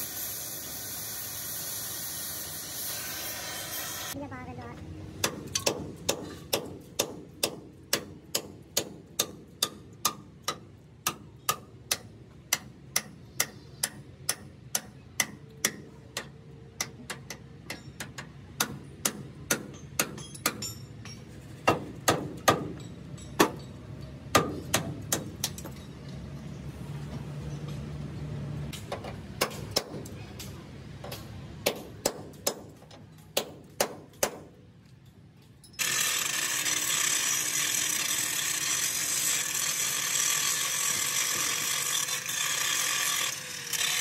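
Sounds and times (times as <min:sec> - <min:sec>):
hammer striking steel: 0:05.2 - 0:26.0, 0:28.7 - 0:34.6.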